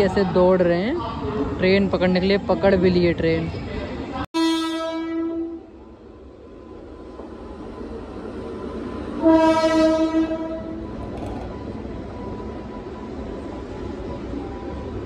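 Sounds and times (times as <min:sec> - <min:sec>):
locomotive horn blast: 0:04.4 - 0:05.7, 0:09.2 - 0:10.9
train rumbling: 0:05.4 - 0:15.0.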